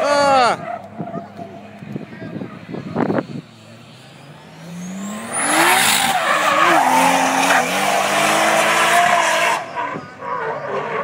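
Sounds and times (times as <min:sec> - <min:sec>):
car engine revving high: 0:02.7 - 0:10.0
tyre squeal: 0:05.3 - 0:11.0.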